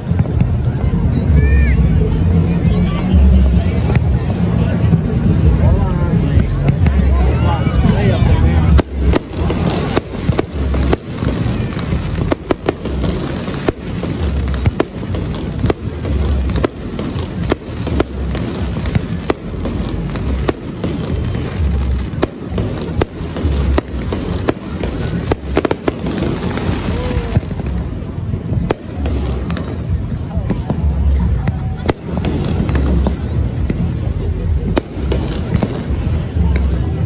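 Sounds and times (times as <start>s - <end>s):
fireworks cracks and crackling: 7.7s - 34.0s, 34.7s - 36.8s
fireworks deep booms: 7.8s - 37.0s.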